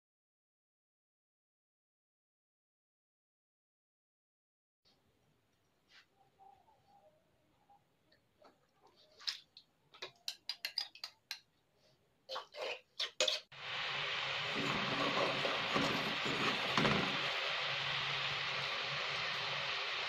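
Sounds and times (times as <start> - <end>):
utensils clinking against a pot: 10.0 - 11.5
syrup bubbling and crackling: 13.5 - 17.4.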